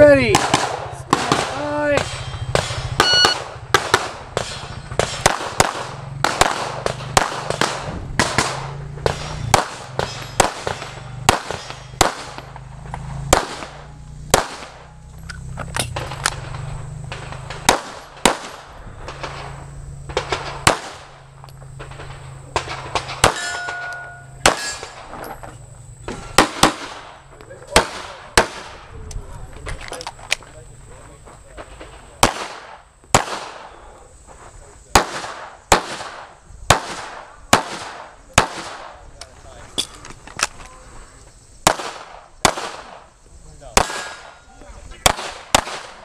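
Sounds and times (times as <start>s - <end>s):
brief ringing tone: 3.0s - 3.4s, 23.4s - 24.4s.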